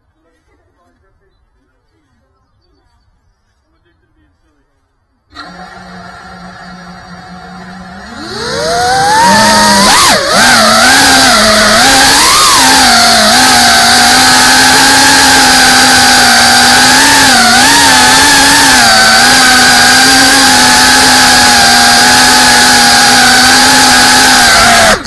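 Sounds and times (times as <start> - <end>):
drone propellers buzzing: 5.3 - 25.0.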